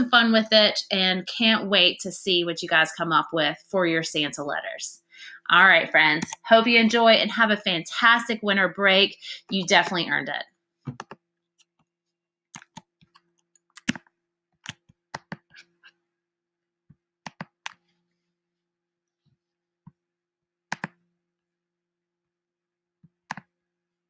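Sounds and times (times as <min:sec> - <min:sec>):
computer mouse and keyboard clicks: 0:12.5 - 0:15.7, 0:17.3 - 0:17.8, 0:20.7 - 0:21.0, 0:23.2 - 0:23.5.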